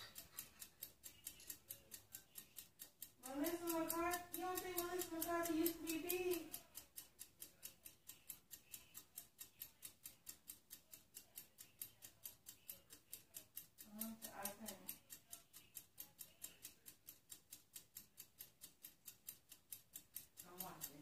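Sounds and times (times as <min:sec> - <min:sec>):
rapid clockwork ticking: 0:00.0 - 0:21.0.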